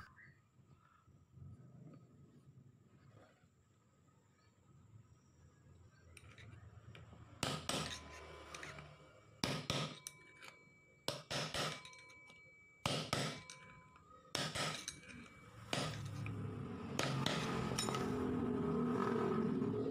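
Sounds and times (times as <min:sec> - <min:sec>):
hammer tapping metal drift: 0:07.4 - 0:18.8.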